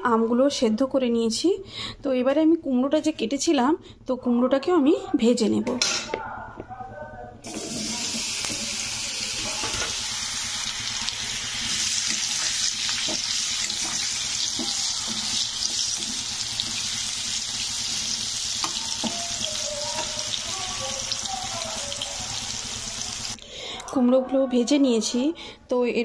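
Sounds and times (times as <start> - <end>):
sizzling hiss of frying: 7.4 - 23.4.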